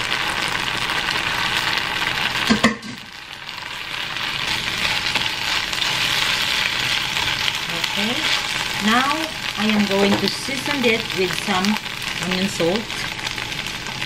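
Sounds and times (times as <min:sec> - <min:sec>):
green beans sizzling in oil: 0:00.0 - 0:14.0
spatula stirring in pan: 0:03.5 - 0:12.2.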